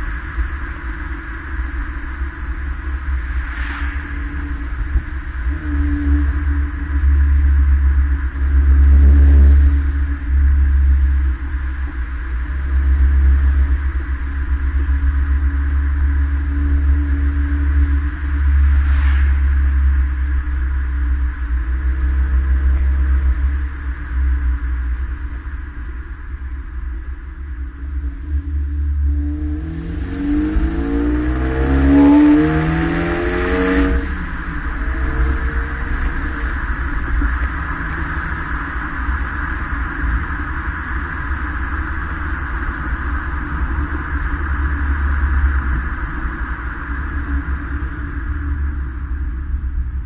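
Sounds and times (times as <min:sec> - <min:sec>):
car exhaust drone: 0:00.0 - 0:50.0.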